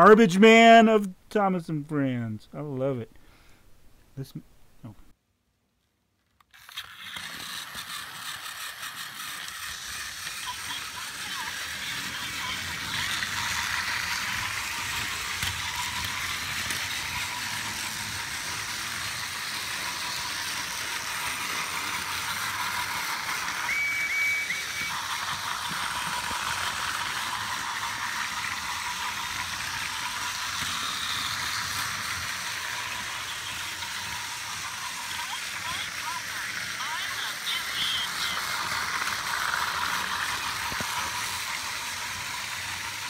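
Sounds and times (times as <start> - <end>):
toy train motor whir: 6.4 - 43.0.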